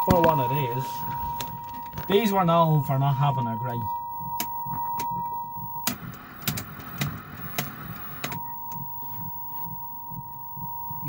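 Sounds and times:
steady test tone: 0.0s - 11.0s
television static hiss: 0.0s - 11.0s
sharp clicks: 4.2s - 8.9s.

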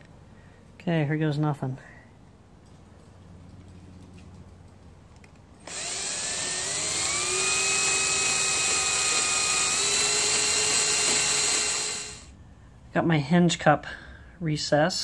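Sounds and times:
cordless drill boring wood: 5.6s - 12.3s.

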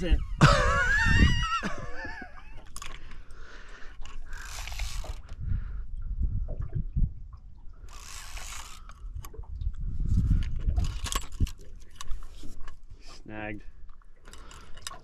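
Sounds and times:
reel drag hissing and clicking: 3.9s - 5.4s, 7.9s - 9.0s
fishing reel squealing: 4.0s - 5.3s, 7.9s - 9.0s.

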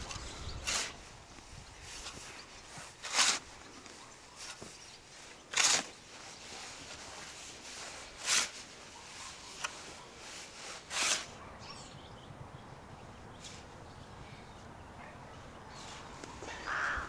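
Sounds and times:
shovel scraping into soil: 0.0s - 1.1s, 1.8s - 11.4s.

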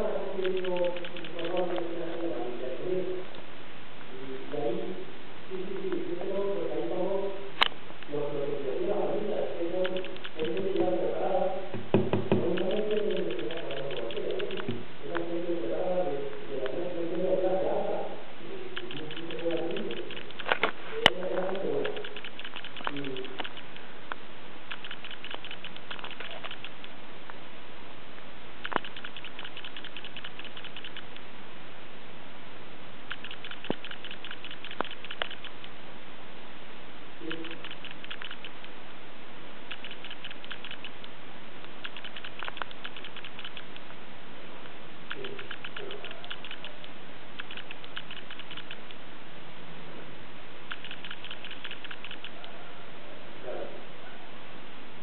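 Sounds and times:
sharp ticks: 0.4s - 2.2s, 9.8s - 11.0s, 11.9s - 14.8s, 18.7s - 27.0s, 28.6s - 31.3s, 33.1s - 35.8s, 37.3s - 38.8s, 39.7s - 43.9s, 45.1s - 49.0s, 50.7s - 52.5s
rat scratchy clicks: 0.4s - 2.4s, 9.7s - 11.1s, 11.8s - 15.3s, 18.7s - 27.0s, 28.6s - 31.3s, 33.0s - 35.8s, 37.2s - 38.8s, 39.6s - 44.0s, 44.6s - 49.0s, 50.6s - 52.6s.

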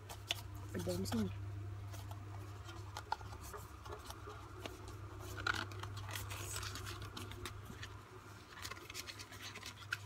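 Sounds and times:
low steady hum: 0.0s - 10.0s
cardboard scraping and tapping: 1.9s - 7.9s.

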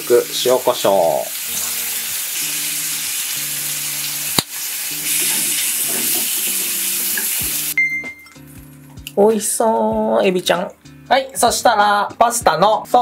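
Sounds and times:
shrimp sizzling in a frying pan: 0.0s - 7.8s.

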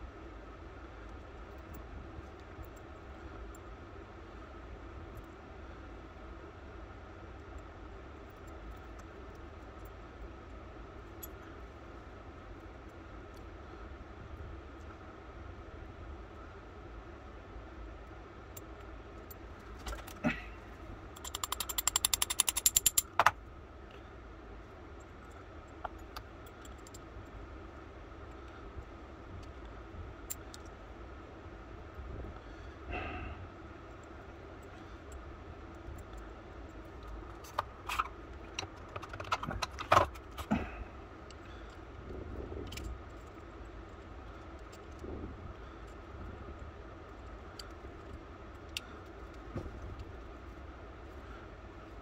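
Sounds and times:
metallic ratcheting clicks: 21.2s - 23.3s
light taps on metal parts: 21.2s - 23.4s, 25.2s - 27.1s.

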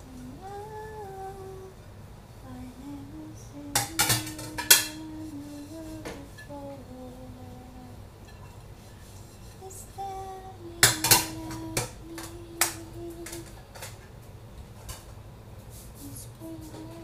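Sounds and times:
woman humming: 0.0s - 1.8s, 2.4s - 8.0s, 9.6s - 13.6s, 16.0s - 17.0s
dishes clinking: 3.8s - 5.1s, 8.2s - 9.6s, 10.8s - 14.0s.

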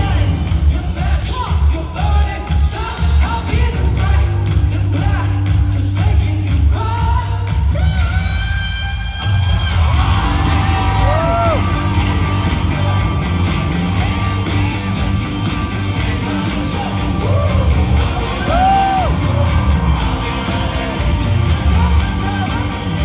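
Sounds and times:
crowd singing and yelling: 0.0s - 23.0s
live rock band playing: 8.5s - 23.0s.

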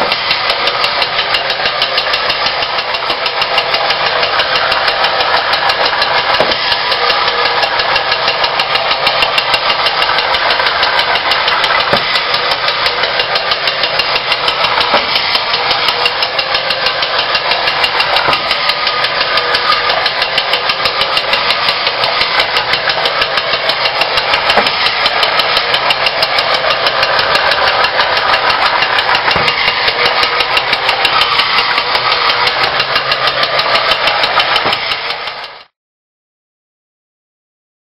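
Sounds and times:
toy knocking against walls: 0.0s - 35.7s
toy motor and gears whirring: 0.0s - 35.7s.

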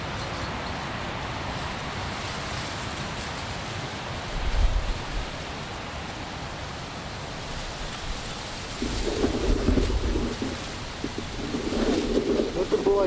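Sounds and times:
steady wind noise: 0.0s - 13.0s
wind buffeting microphone: 4.2s - 5.6s, 7.4s - 13.0s.

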